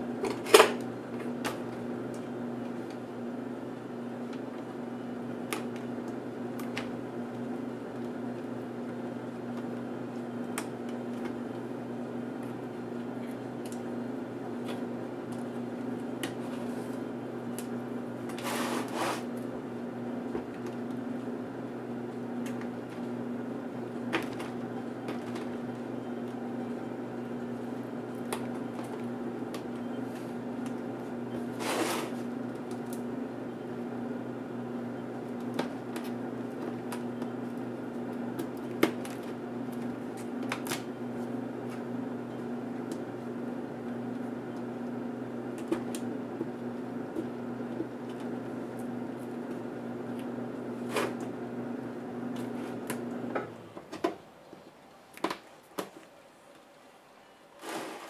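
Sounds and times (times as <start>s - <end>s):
scraping rustles: 18.3s - 19.4s, 57.6s - 58.0s.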